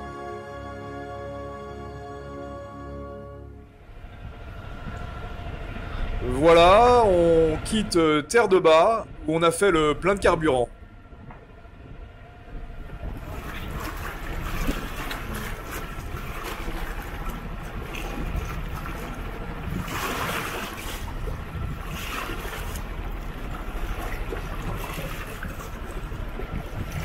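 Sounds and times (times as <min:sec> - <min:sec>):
water rushing and splashing: 0:03.8 - 0:10.7, 0:12.4 - 0:27.0
wind on microphone: 0:11.1 - 0:27.0.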